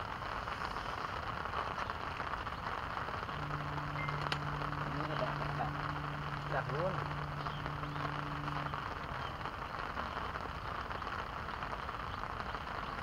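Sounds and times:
rain falling on pond: 0.0 - 13.0
low steady hum: 2.9 - 10.5.

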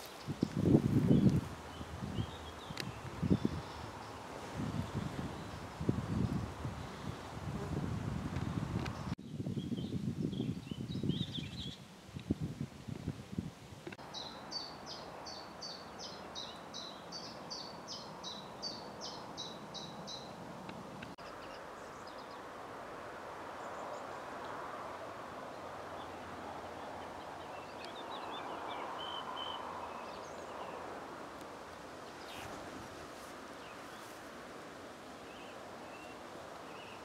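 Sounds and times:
light outdoor hiss: 0.0 - 9.2, 11.4 - 37.0
steady rustling hiss: 0.0 - 9.2, 29.2 - 37.0.

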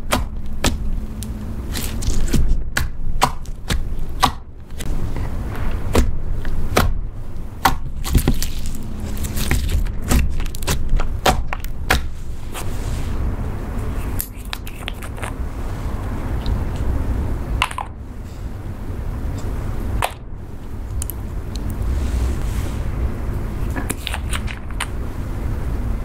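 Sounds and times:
slime squishing: 0.0 - 13.2.

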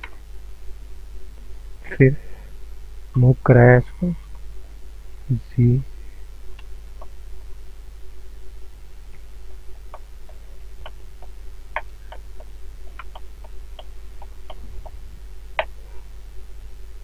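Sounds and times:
low electrical hum: 0.0 - 17.0
computer mouse and keyboard clicks: 11.8 - 15.0.

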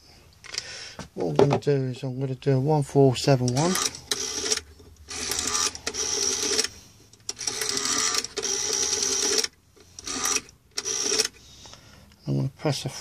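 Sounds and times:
rotary telephone dial whirring: 3.5 - 11.4.

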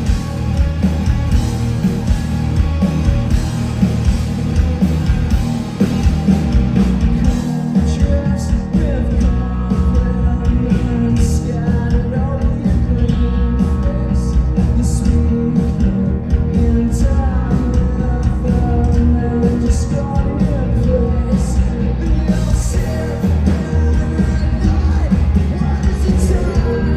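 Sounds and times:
bass guitar: 0.0 - 26.9
drums: 0.0 - 26.9
electric guitars: 0.0 - 26.9
person singing: 7.2 - 26.9.

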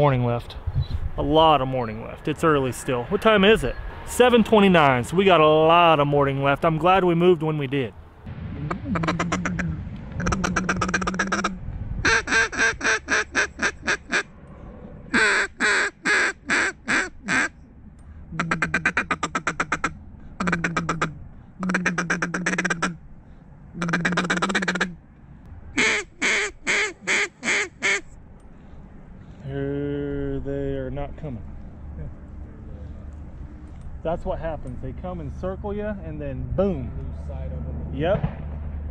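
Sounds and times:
duck call quacks: 8.7 - 14.3, 15.1 - 17.5, 18.3 - 23.0, 23.8 - 25.0, 25.8 - 28.0.

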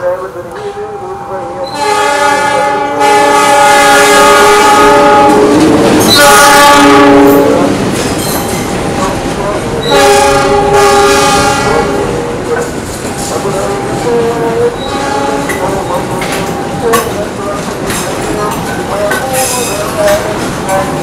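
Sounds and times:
diesel locomotive horn blasts: 0.9 - 7.8, 9.0 - 12.6, 13.7 - 15.9
freight cars rumbling and clattering: 5.1 - 6.3, 7.3 - 21.0.

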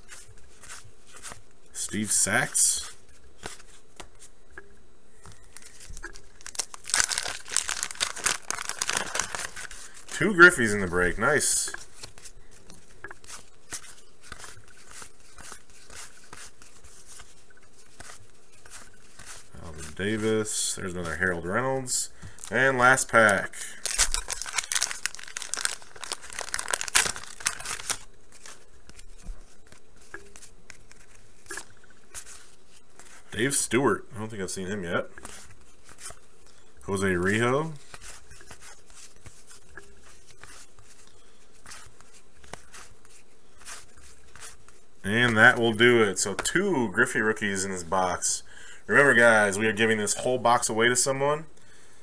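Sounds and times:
wax-paper wrapper tearing and crinkling: 5.5 - 11.4, 22.4 - 29.1.

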